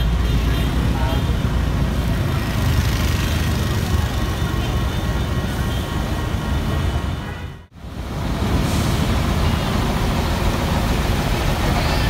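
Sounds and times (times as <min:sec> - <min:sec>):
truck diesel engine: 0:07.7 - 0:12.0.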